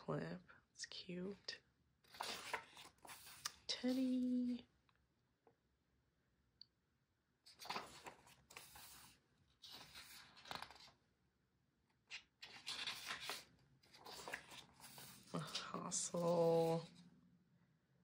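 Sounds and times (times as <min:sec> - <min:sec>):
book pages rustling: 0:02.1 - 0:04.5, 0:07.5 - 0:11.0, 0:11.9 - 0:17.1.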